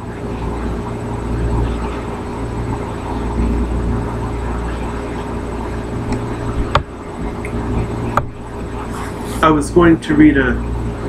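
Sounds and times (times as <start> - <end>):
low background hum and rumble: 0.0 - 11.0.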